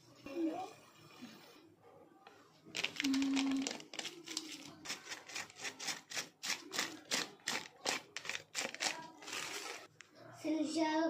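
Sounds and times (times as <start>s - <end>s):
plastic packet rustling: 2.7s - 9.9s.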